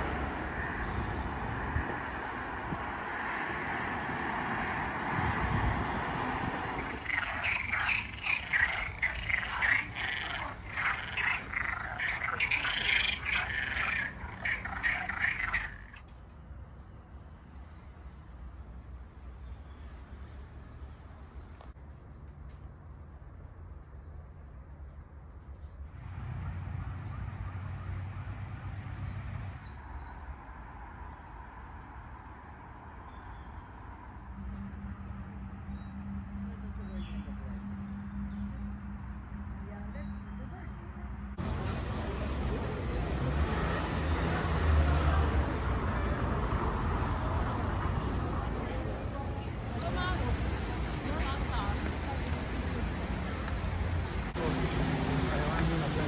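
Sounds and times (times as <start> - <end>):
frogs croaking: 6.4 - 16.1
faint bird chirps: 6.8 - 16.0.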